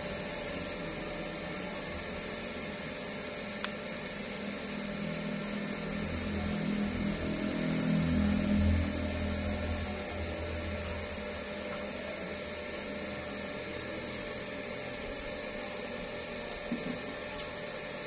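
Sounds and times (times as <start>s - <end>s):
lower hum: 0.0s - 17.5s
electrical hum: 0.0s - 18.0s.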